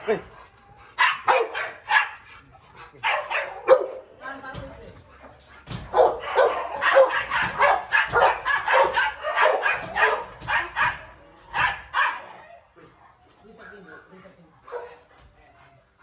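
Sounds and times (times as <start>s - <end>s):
dog barking: 1.0s - 2.2s, 3.0s - 4.1s, 5.9s - 12.4s, 14.7s - 15.0s.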